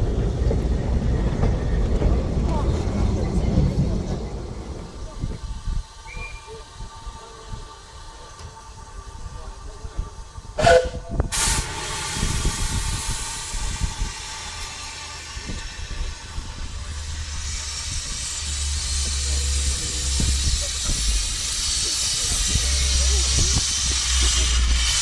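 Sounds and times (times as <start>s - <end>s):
steam hissing from cylinders: 3.3s - 25.0s
steam locomotive whistle toots: 6.0s - 7.6s, 10.6s - 14.7s.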